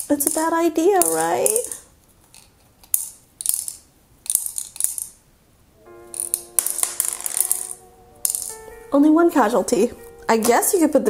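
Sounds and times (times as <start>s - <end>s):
plastic beads clicking and rattling: 0.0s - 5.2s
steady musical tones: 5.7s - 11.0s.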